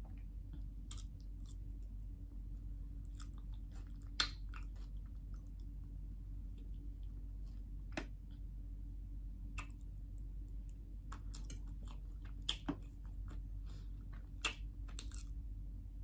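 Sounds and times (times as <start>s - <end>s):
low hum: 0.0s - 16.0s
chewing mouth sounds: 3.0s - 5.8s, 11.0s - 15.4s.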